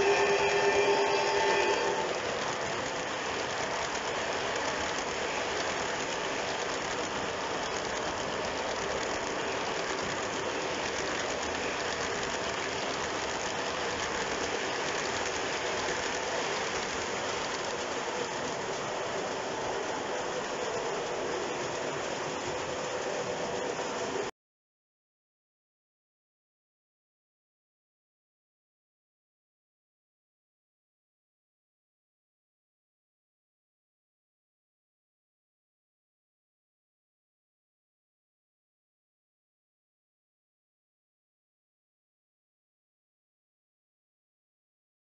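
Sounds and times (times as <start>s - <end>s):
metal wheels rattling on rails: 0.0s - 24.2s
faint track clicking: 0.0s - 24.3s.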